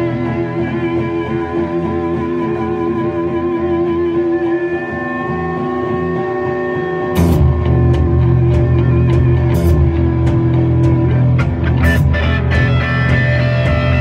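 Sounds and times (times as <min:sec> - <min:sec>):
bass guitar: 0:00.0 - 0:14.0
drums: 0:00.0 - 0:14.0
electric guitars sustained notes: 0:00.0 - 0:14.0.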